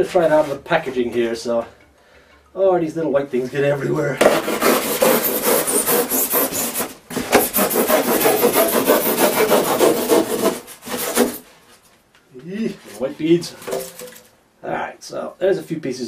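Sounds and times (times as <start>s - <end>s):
knife sawing through styrofoam: 4.2s - 11.4s.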